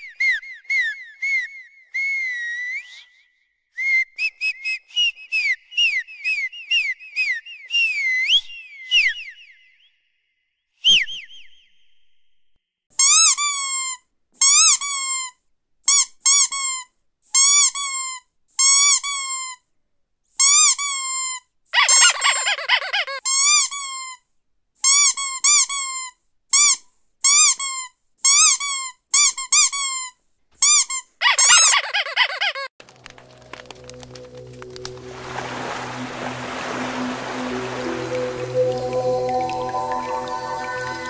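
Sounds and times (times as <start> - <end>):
squeaky toy squeaking: 13.0 - 19.6, 20.4 - 24.2, 24.8 - 32.7.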